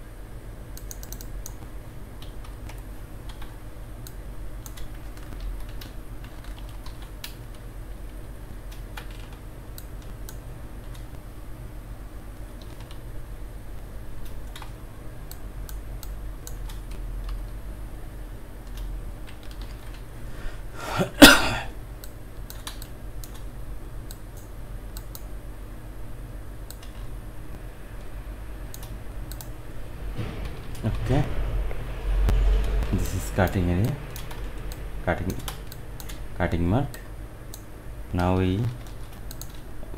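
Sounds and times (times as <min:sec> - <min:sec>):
steady low hum: 0:00.0 - 0:39.9
computer keyboard clicks: 0:00.8 - 0:01.6, 0:02.2 - 0:07.4, 0:08.7 - 0:11.1, 0:12.6 - 0:13.0, 0:18.6 - 0:20.0, 0:22.0 - 0:23.5, 0:24.1 - 0:25.3, 0:26.7 - 0:27.1, 0:28.7 - 0:29.5, 0:32.6 - 0:36.2, 0:36.9 - 0:39.7
mouse clicks: 0:00.8 - 0:01.6, 0:28.7 - 0:29.5, 0:38.8 - 0:39.6
person clearing throat: 0:20.8 - 0:21.7.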